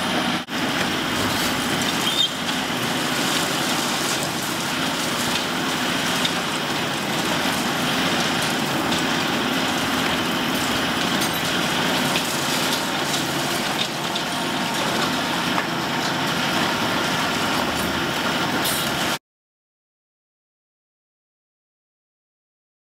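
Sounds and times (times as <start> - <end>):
excavator diesel engine running: 0.0 - 19.2
cracks of breaking rubble: 1.0 - 15.3.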